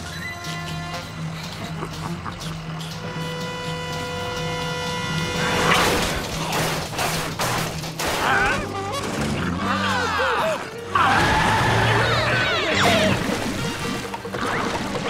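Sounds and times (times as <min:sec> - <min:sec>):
cartoon background music: 0:00.0 - 0:15.0
crash and clatter: 0:05.3 - 0:09.7.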